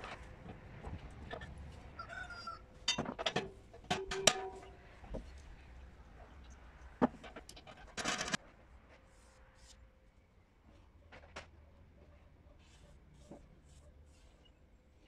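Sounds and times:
metal drum clinking and knocking: 2.8 - 4.9.

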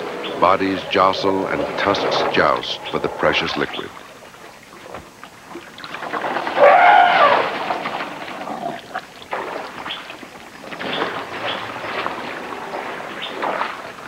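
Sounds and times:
elephant call: 0.0 - 4.0, 6.5 - 9.0
elephants jostling: 6.1 - 13.7.

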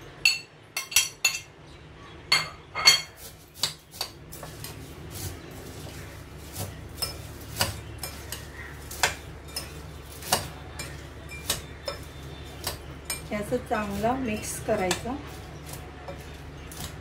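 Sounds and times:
metal spoon clinking on glass bowl: 0.2 - 1.5, 7.0 - 13.3.

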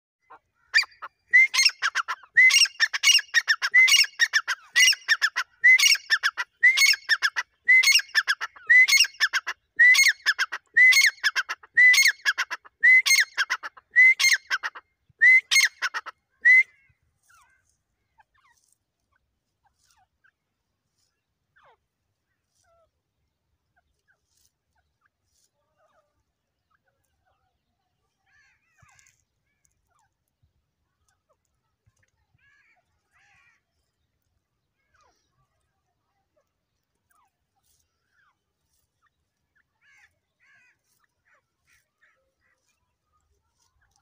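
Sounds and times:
francolin calling: 0.2 - 17.5.

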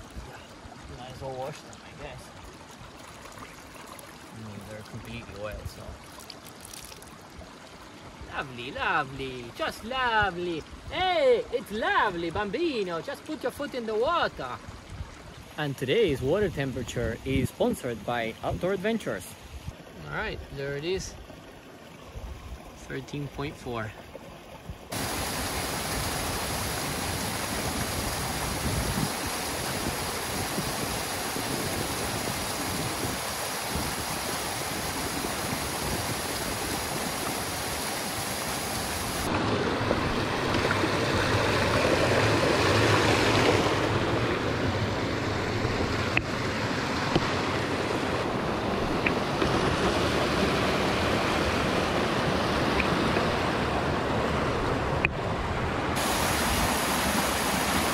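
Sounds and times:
stream rushing over rocks: 0.0 - 16.4, 24.8 - 57.9.

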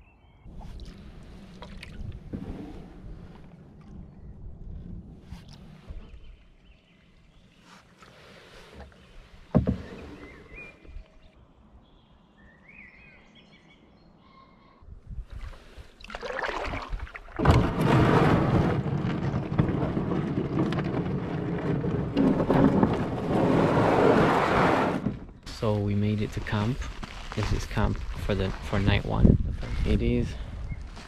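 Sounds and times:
canoe hull scraping on shingle: 0.6 - 3.7, 7.5 - 10.9, 16.4 - 31.0
hull grinding on pebbles: 1.0 - 7.8, 17.4 - 31.0
birds calling: 5.4 - 14.8.

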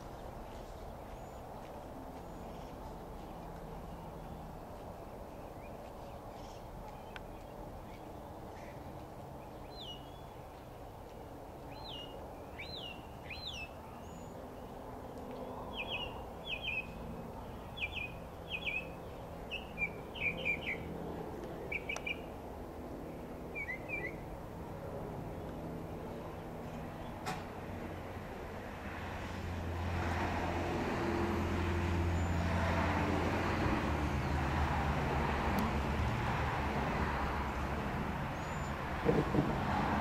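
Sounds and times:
mockingbird singing: 15.7 - 17.0, 17.6 - 20.9, 21.7 - 22.3, 23.5 - 24.2.

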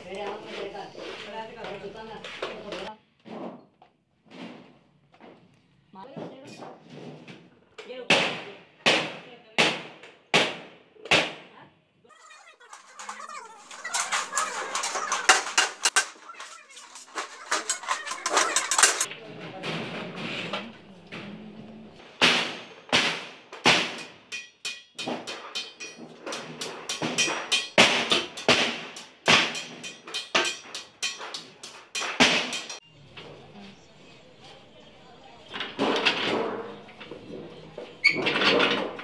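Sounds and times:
hand shears cutting steel sheet: 12.5 - 19.1.

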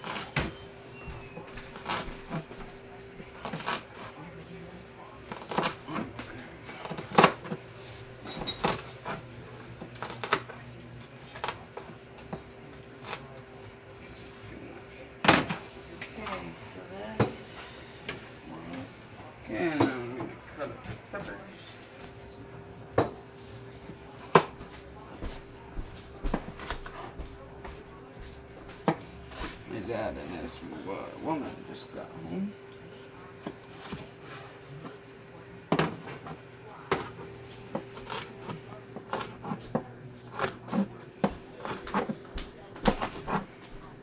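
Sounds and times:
knife chopping on cutting board: 39.0 - 42.2.

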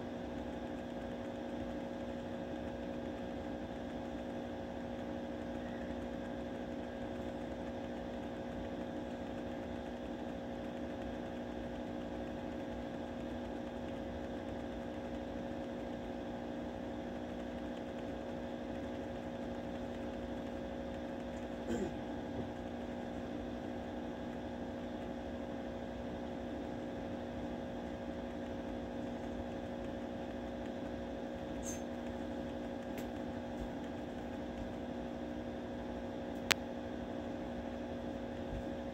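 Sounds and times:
steady electrical hum: 0.0 - 38.9
faint clicks: 0.4 - 16.1.

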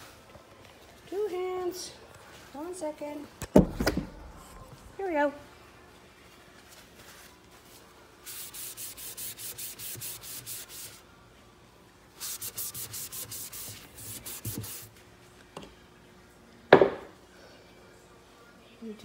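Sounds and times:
paper towel rubbing on wood: 8.2 - 11.0, 12.2 - 14.9.

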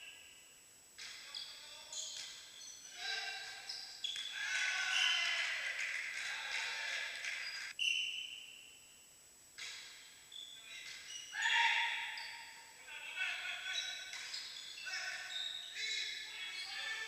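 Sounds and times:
sneakers squeaking on floor: 1.0 - 5.4, 7.2 - 8.8, 9.6 - 12.7, 13.8 - 17.0.

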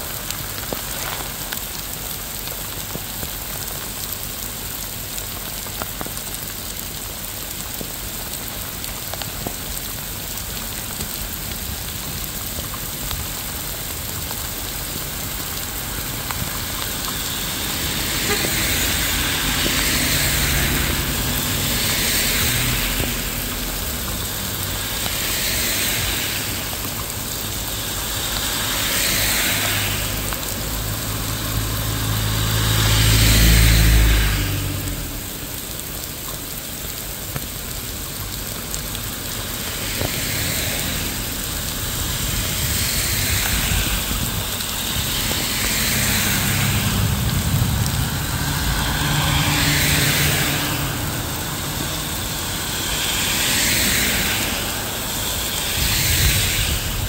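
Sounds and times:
steady rain falling: 0.0 - 57.0
hiss: 8.2 - 57.0
vehicle engine humming: 14.7 - 25.3, 44.5 - 55.4.

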